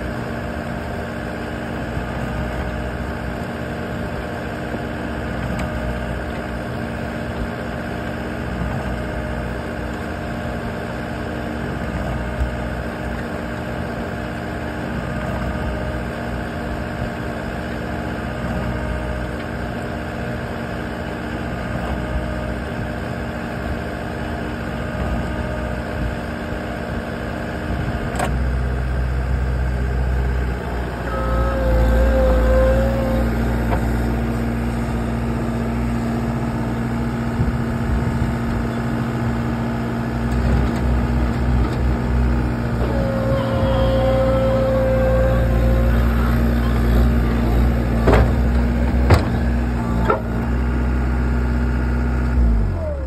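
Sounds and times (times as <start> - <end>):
loader engine running: 0.0 - 53.0
short machine whine: 27.9 - 51.2.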